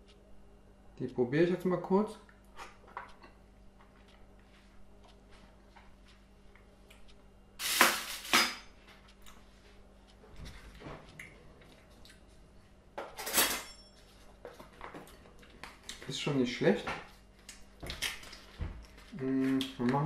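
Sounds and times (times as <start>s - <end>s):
cutlery clattering in a drawer: 13.1s - 13.8s.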